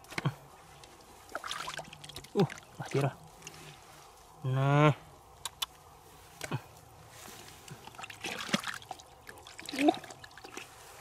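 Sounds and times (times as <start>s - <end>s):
wet mud squelching: 0.0s - 3.8s, 7.3s - 11.0s.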